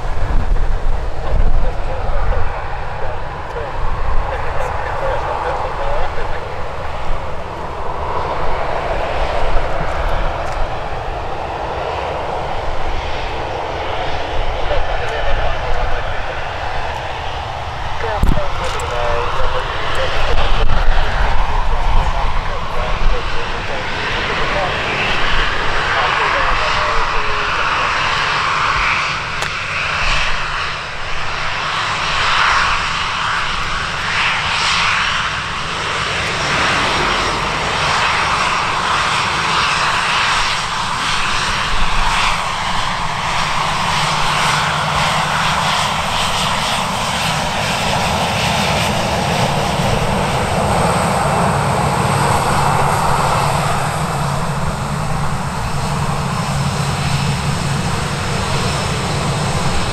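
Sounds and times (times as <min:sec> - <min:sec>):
airliner engines running: 0:00.0 - 0:59.9
low hum: 0:32.3 - 0:40.8.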